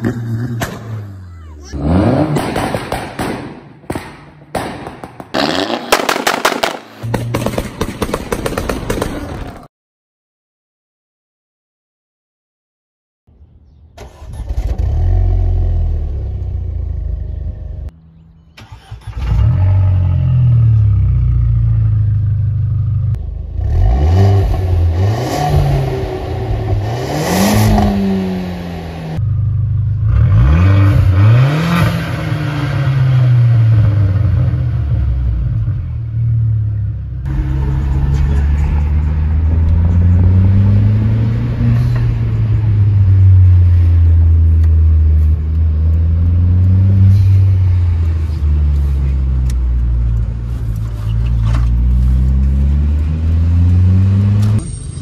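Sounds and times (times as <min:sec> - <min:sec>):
car engine revving: 0:00.0 - 0:03.0, 0:18.6 - 0:54.7.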